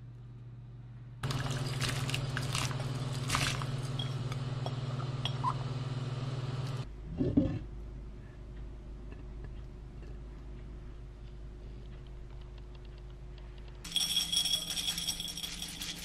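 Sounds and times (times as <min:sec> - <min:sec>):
low hum: 0:00.0 - 0:15.9
water boiling and bubbling: 0:01.2 - 0:06.8.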